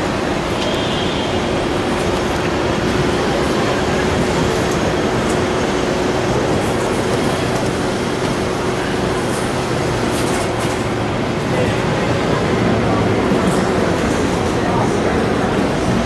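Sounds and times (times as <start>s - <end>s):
tram running rumble: 0.0s - 16.0s.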